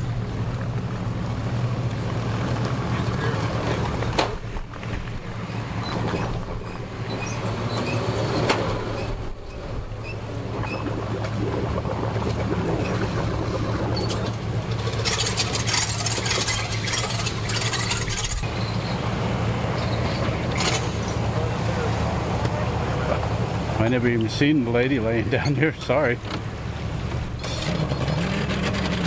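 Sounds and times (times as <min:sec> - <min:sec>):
outboard motor humming: 0:00.0 - 0:29.0
propeller churning water: 0:00.0 - 0:29.0
water hissing and splashing: 0:09.4 - 0:18.8.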